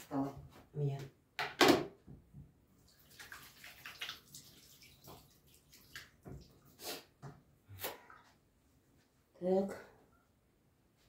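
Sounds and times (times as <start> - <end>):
water splashing at sink: 2.8 - 8.2.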